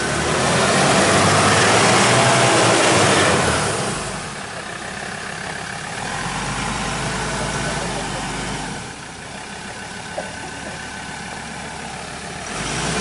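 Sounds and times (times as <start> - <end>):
pickup engine revving: 0.0 - 4.6, 5.8 - 9.1, 10.2 - 13.0.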